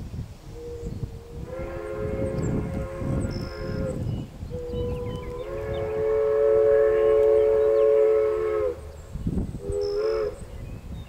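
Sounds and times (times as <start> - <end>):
steam locomotive chime whistle: 9.6 - 10.4.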